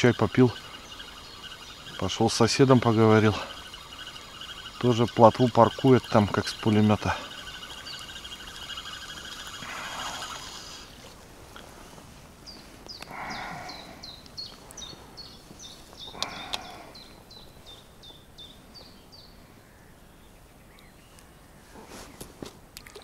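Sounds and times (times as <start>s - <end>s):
bird singing: 0.0s - 11.1s, 12.4s - 22.2s
rustling noise: 10.9s - 12.9s, 21.2s - 22.7s.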